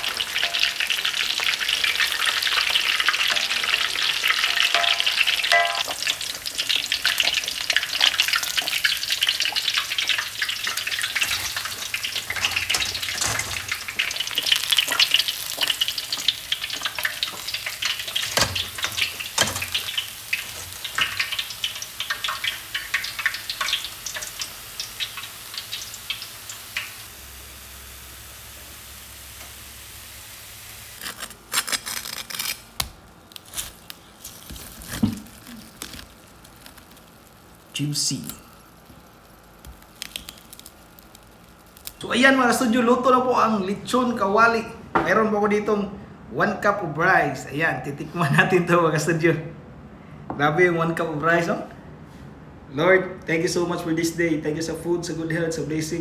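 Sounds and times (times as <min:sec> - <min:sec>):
pork deep-frying in hot oil: 0:00.0 - 0:43.3
knife crunching through crisp skin: 0:31.0 - 0:37.1.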